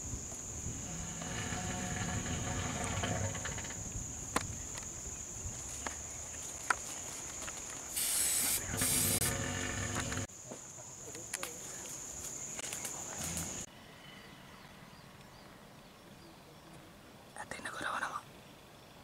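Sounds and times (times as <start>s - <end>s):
high insect drone: 0.0s - 13.7s
aerosol spray hissing: 7.9s - 9.3s.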